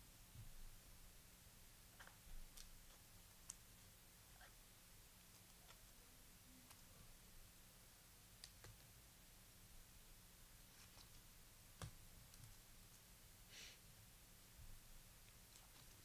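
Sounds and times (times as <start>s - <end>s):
soft brush of cards: 10.6s - 11.3s.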